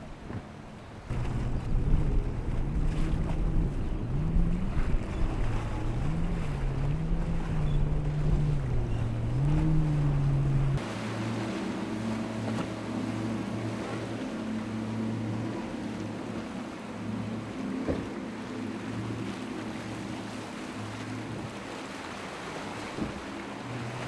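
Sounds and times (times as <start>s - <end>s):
boat engine running hard: 0.0s - 24.0s
outboard engines droning: 0.0s - 24.0s
waves splashing: 0.0s - 24.0s
wind rumble: 1.0s - 10.9s.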